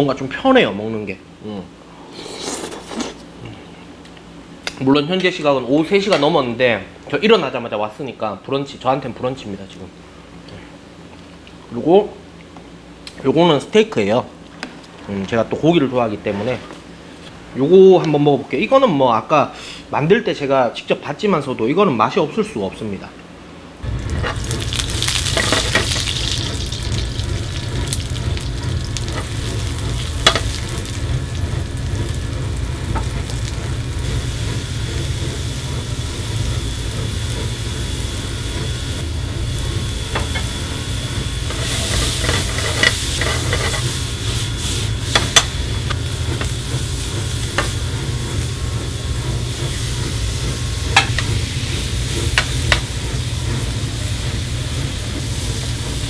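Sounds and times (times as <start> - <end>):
food sizzling in oil: 23.8 - 56.0.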